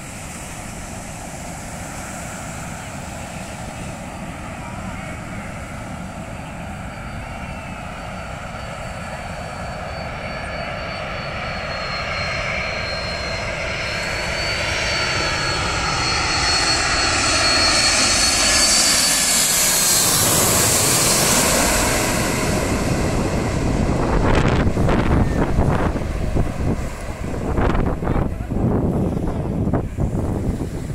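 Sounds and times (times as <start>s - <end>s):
jet wash buffeting microphone: 0.0s - 7.0s, 18.6s - 30.9s
jet engines passing overhead: 0.0s - 30.9s.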